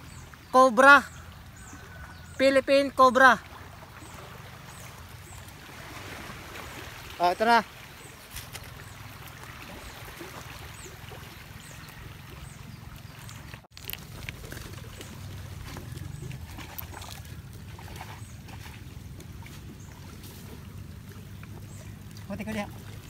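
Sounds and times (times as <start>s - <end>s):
faint trickle of water: 3.4s - 23.0s.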